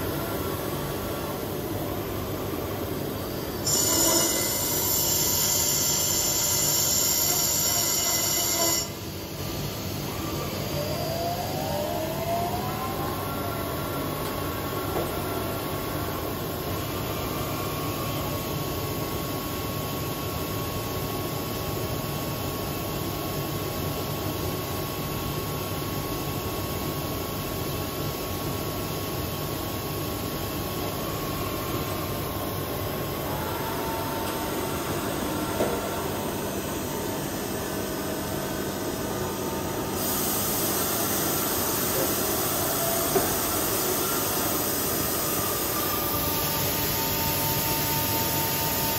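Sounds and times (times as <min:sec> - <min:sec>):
loud hiss: 0:39.9 - 0:48.9.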